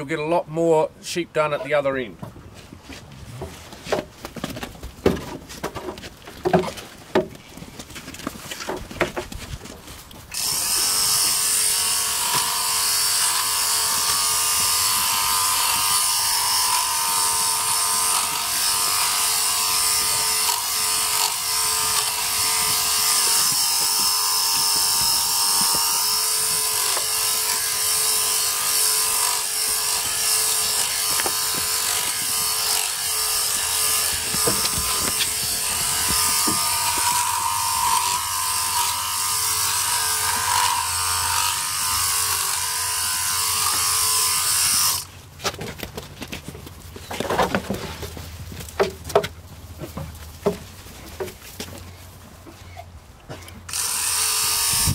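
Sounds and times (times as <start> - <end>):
clipper cutting wool: 10.3 - 45.1
electric sheep clipper running: 10.3 - 45.1, 53.7 - 54.9.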